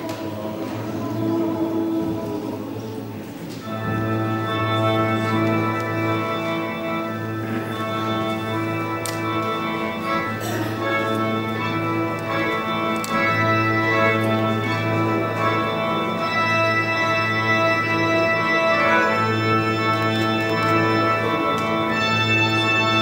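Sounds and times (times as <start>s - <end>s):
mixed choir singing: 0.0s - 3.9s.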